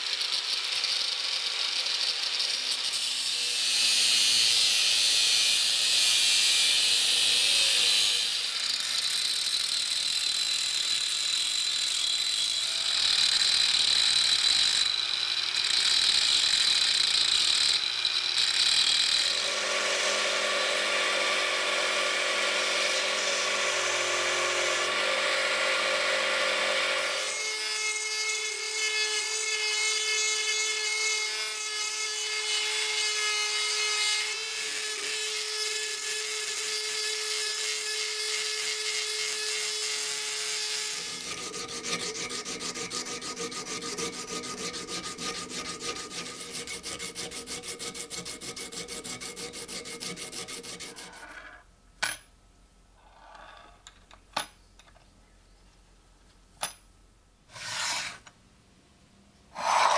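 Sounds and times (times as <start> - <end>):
belt grinder grinding steel: 0.0 - 51.6, 57.5 - 58.3, 59.5 - 59.9
rotary tool motor buffing: 0.0 - 51.6, 57.5 - 58.3, 59.5 - 59.9.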